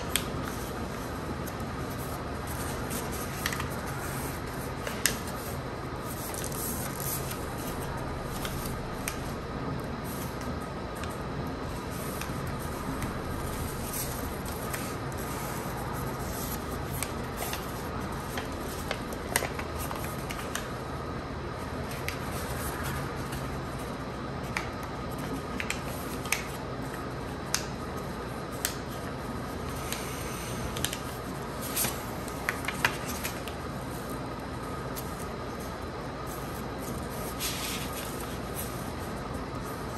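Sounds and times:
paper rustling and crackling: 0.0 - 9.4, 10.0 - 20.8, 30.7 - 39.9.

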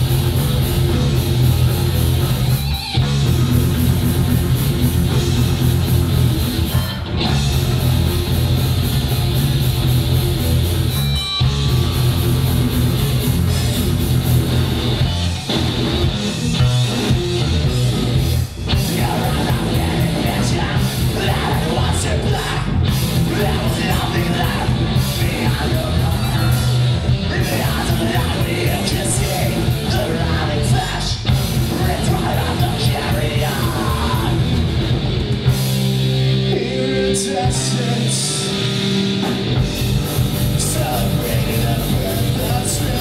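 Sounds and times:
bass guitar: 0.0 - 43.0
drum kit: 0.0 - 43.0
electric guitar: 0.0 - 43.0
man singing: 18.7 - 34.6, 36.4 - 38.8, 40.5 - 43.0.

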